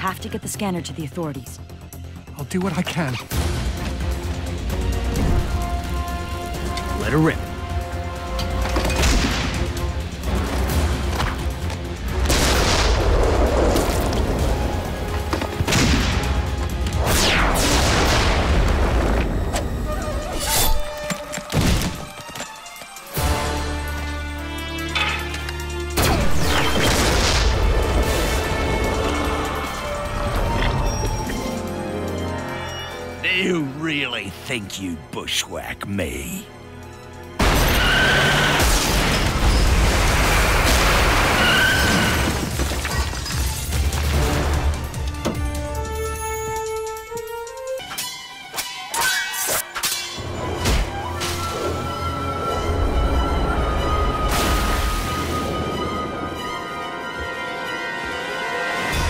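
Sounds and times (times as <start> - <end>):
background music: 0.0 - 59.0
explosions: 17.0 - 19.5
rubble tumbling: 39.1 - 44.3.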